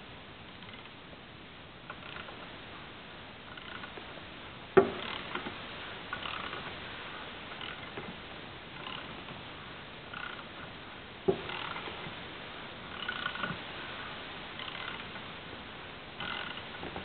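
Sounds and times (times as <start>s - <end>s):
engine block turning over slowly: 3.5s - 9.4s, 10.1s - 15.3s, 16.2s - 17.0s
ticks and squeaks of moving parts: 12.9s - 13.6s, 14.6s - 15.1s, 16.2s - 17.0s.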